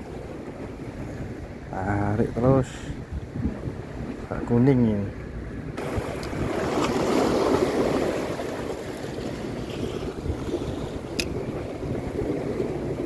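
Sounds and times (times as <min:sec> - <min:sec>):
wind buffeting microphone: 0:00.0 - 0:13.0
waves splashing against rocks: 0:05.8 - 0:13.0.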